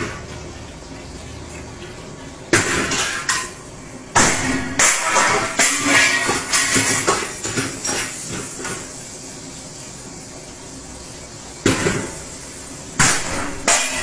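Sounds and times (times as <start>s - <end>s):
metal ladle clanking on woks: 2.6s - 8.9s, 13.0s - 14.0s
loud metal clash: 4.2s - 7.6s, 13.0s - 14.0s.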